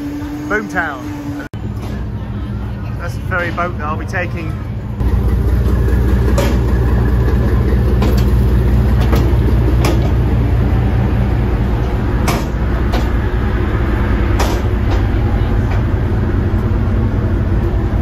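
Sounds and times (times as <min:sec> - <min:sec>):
ferry engines rumbling: 0:00.0 - 0:18.0
sharp knocks: 0:12.2 - 0:13.2.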